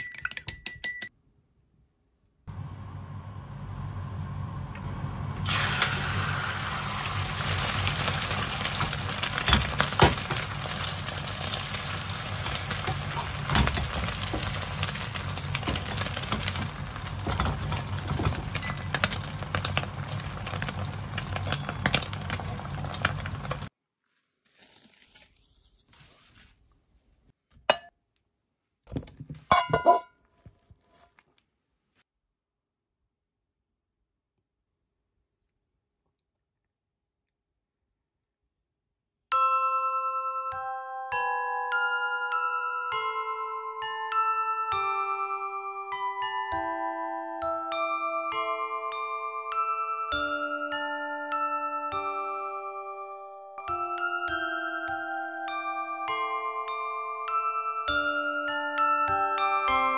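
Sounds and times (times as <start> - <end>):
egg sizzling in hot oil: 5.4 - 23.7
dishes clinking: 29.5 - 30.1.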